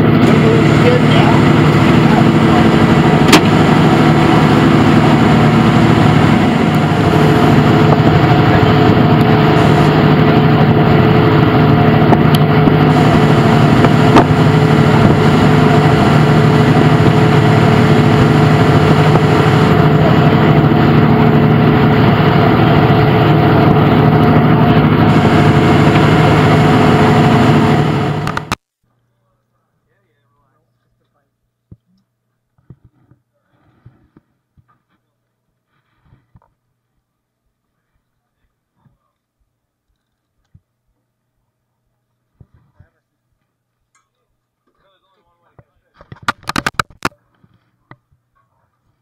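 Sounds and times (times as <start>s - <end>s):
boat engine droning: 0.0s - 28.6s.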